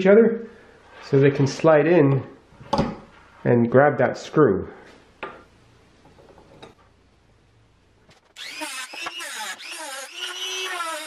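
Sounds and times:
rotary tool grinding metal: 0:08.4 - 0:11.0.

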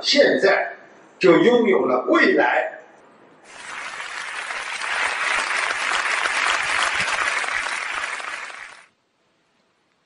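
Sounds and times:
audience applauding: 0:03.5 - 0:08.9.

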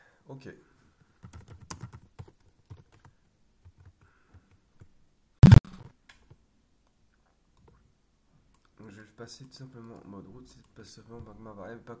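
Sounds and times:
loud thump: 0:05.4 - 0:05.8.

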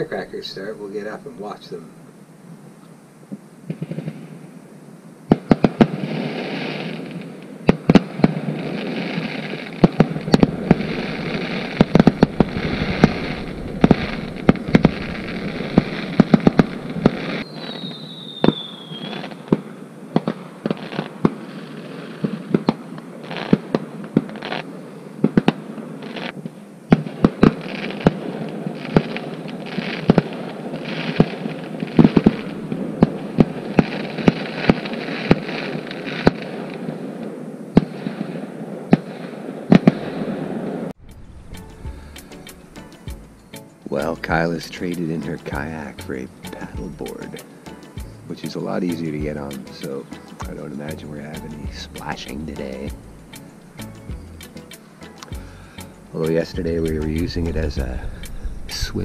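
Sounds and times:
fireworks bangs and crackles: 0:03.7 - 0:04.5, 0:05.3 - 0:55.3, 0:56.1 - 0:59.0
falling firework whistle: 0:05.3 - 0:51.4
steady rumble: 0:10.3 - 0:17.4, 0:41.0 - 0:43.4.

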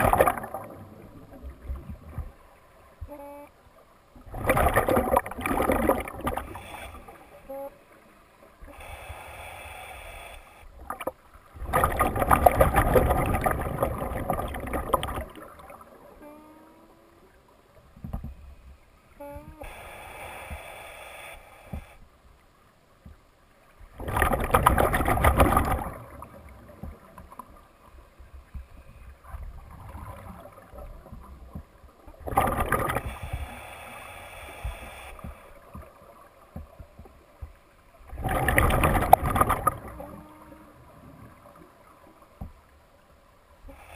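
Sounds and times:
exhaled bubbles rushing: 0:00.0 - 0:02.0, 0:04.3 - 0:06.6, 0:11.6 - 0:15.9, 0:23.9 - 0:26.7, 0:32.2 - 0:33.2, 0:38.1 - 0:40.0
hissing regulator inhalations: 0:06.4 - 0:07.8, 0:08.6 - 0:10.7, 0:19.3 - 0:22.0, 0:33.0 - 0:35.6.

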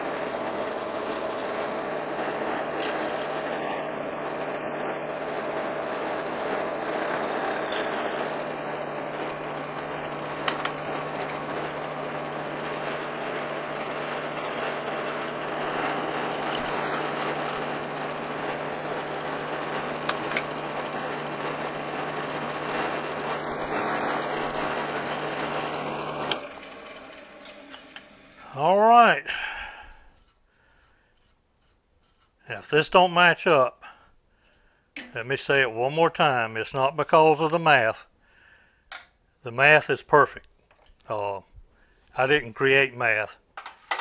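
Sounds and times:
drill press motor running: 0:00.0 - 0:31.3
high squeals: 0:06.7 - 0:29.2.

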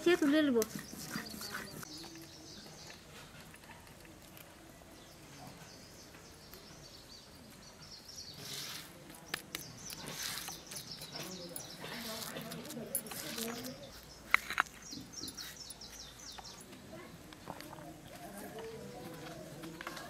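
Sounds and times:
faint birdsong: 0:00.0 - 0:20.0
rasping scrapes on stone: 0:09.8 - 0:14.5.

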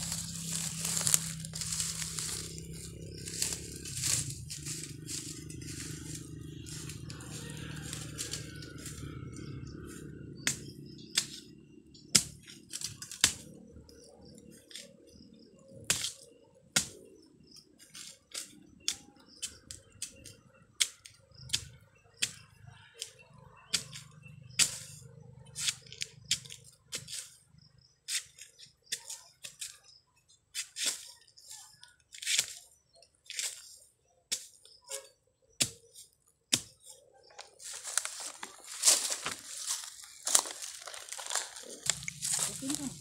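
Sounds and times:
dry litter crackling: 0:00.0 - 0:08.9, 0:37.3 - 0:43.0
knife chopping bamboo: 0:12.2 - 0:13.5, 0:16.8 - 0:17.0, 0:35.6 - 0:36.9.

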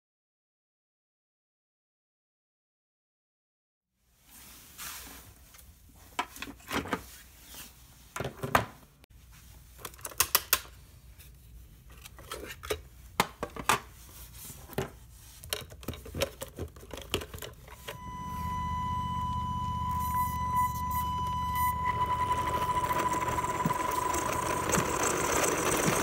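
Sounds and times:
plastic toy clicks and rattles: 0:15.4 - 0:18.0
high electronic tone: 0:17.8 - 0:26.0
low hum: 0:17.8 - 0:26.0.

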